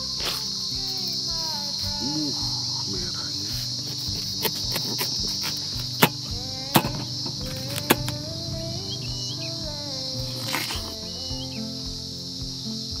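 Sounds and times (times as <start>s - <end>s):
insects chirring: 0.0s - 13.0s
knife cutting watermelon: 3.5s - 8.2s, 10.3s - 11.0s.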